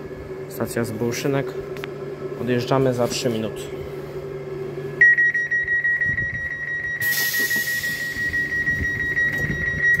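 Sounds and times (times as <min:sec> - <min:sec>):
high-pitched warning beep: 0:05.0 - 0:10.0
air hiss of door closing: 0:07.0 - 0:08.2.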